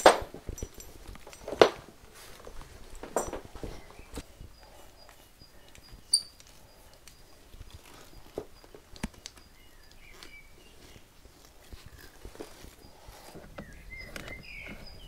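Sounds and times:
sharp metallic clink: 0:00.0 - 0:01.9, 0:06.1 - 0:06.4
hose fittings clicking and knocking: 0:00.0 - 0:03.8.

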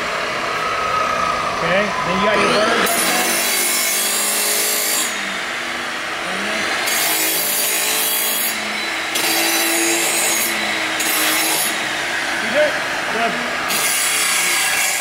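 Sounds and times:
chop saw motor whine: 0:00.0 - 0:15.0
abrasive wheel grinding metal: 0:01.9 - 0:15.0.

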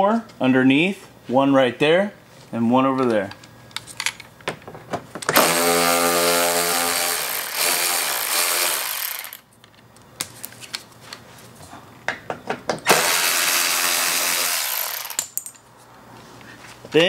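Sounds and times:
cordless ratchet running: 0:06.6 - 0:09.4, 0:12.9 - 0:15.2.

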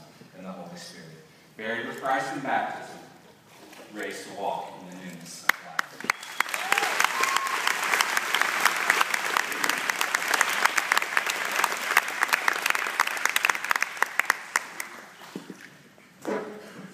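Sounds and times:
congregation applauding: 0:05.5 - 0:15.2.

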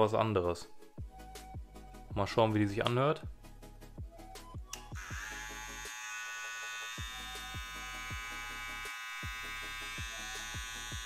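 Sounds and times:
hair trimmer motor buzz: 0:04.9 - 0:11.0.

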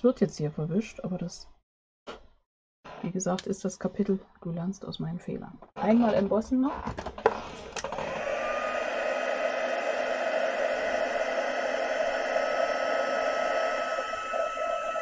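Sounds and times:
heat tool fan whining: 0:07.8 - 0:15.0
hot air rushing hiss: 0:07.8 - 0:15.0.

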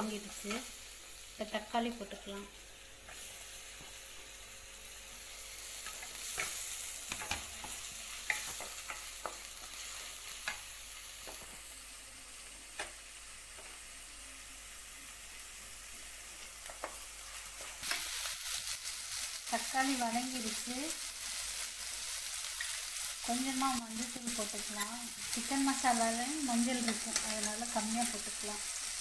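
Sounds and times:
vegetables sizzling in hot oil: 0:00.0 - 0:29.0
spatula scraping and tapping pan: 0:05.8 - 0:11.6.

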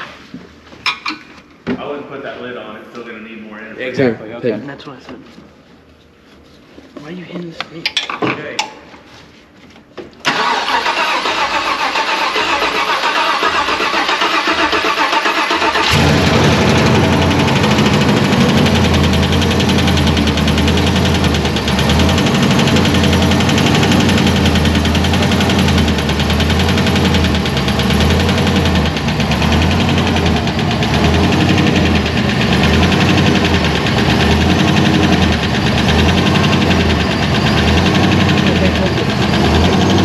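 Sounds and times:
engine starter cranking: 0:10.2 - 0:40.0
engine idling: 0:10.3 - 0:40.0.

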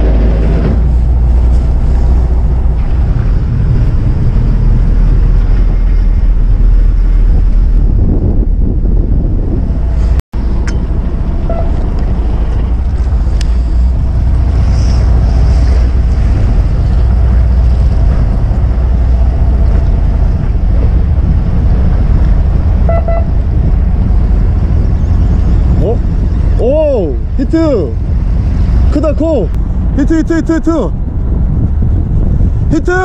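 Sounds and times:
wind rumble on microphone: 0:00.0 - 0:33.0
waves washing: 0:09.7 - 0:30.0.

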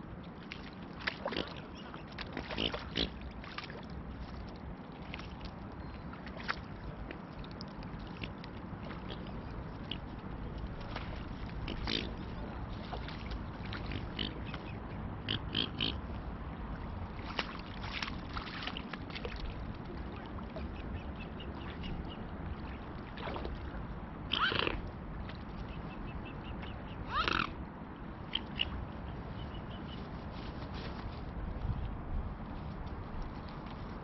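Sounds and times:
steady low rumble: 0:03.1 - 0:34.0
swans grunting: 0:11.6 - 0:12.6, 0:13.8 - 0:16.0, 0:24.3 - 0:24.8.

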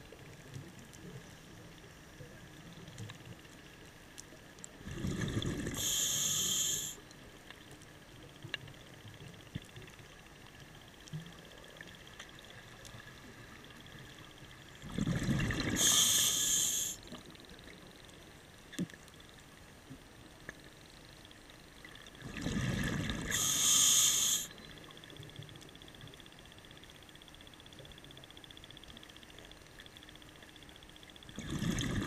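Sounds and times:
regulator breath hiss: 0:05.7 - 0:07.0, 0:15.8 - 0:17.1, 0:23.3 - 0:24.6
underwater regulator bubbling: 0:31.4 - 0:32.0.

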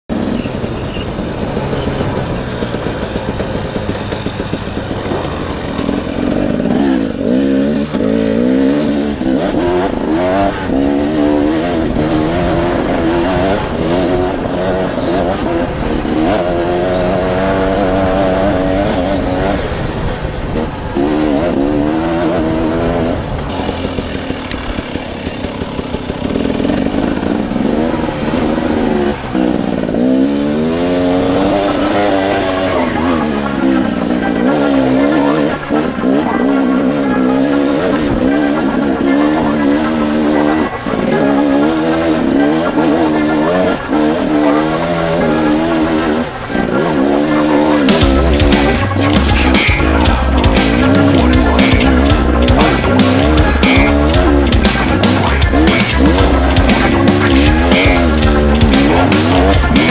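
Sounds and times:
dirt bike engine revving: 0:00.0 - 0:59.9
wind noise: 0:08.6 - 0:32.9.

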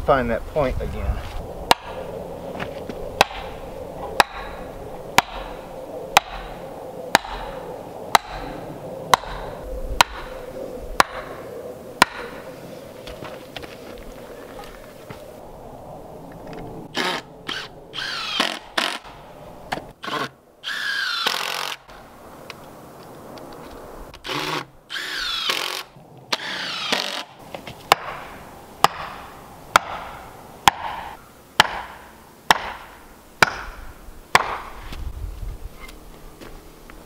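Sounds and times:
hammer knocking wooden stake: 0:03.2 - 0:03.5, 0:04.2 - 0:04.6, 0:05.2 - 0:05.5, 0:06.2 - 0:06.5, 0:08.1 - 0:08.5, 0:09.1 - 0:09.4, 0:12.0 - 0:12.3, 0:27.9 - 0:33.8, 0:34.4 - 0:34.7
cordless drill driving screws: 0:17.0 - 0:19.1, 0:20.0 - 0:21.9, 0:24.2 - 0:27.3.

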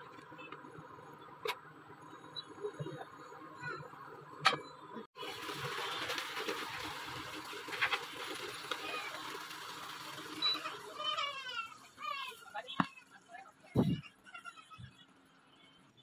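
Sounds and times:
curry bubbling in a pan: 0:05.2 - 0:11.7.

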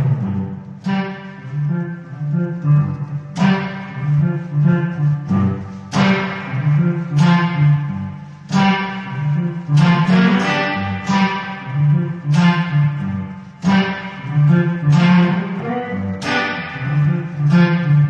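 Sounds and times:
moving bass line: 0:00.0 - 0:18.0
electric guitar strummed chords: 0:03.4 - 0:13.0, 0:13.6 - 0:18.0.

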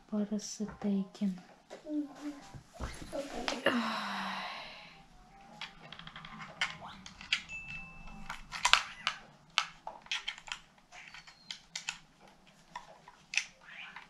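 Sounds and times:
plastic clicks and taps: 0:08.3 - 0:14.0.

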